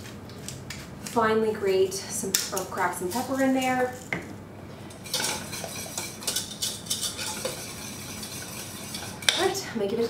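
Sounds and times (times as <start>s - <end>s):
whisk scraping a saucepan: 4.9s - 10.0s.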